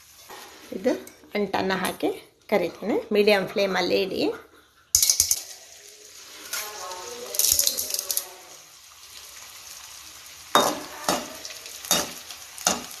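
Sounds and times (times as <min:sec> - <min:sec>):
gum sizzling in hot oil: 0:00.0 - 0:01.4, 0:04.9 - 0:13.0.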